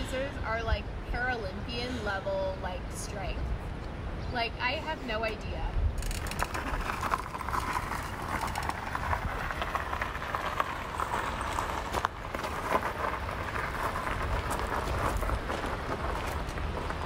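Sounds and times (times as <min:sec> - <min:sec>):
footsteps on gravel: 0:06.0 - 0:17.0
wheelchair tyres crunching gravel: 0:06.0 - 0:17.0.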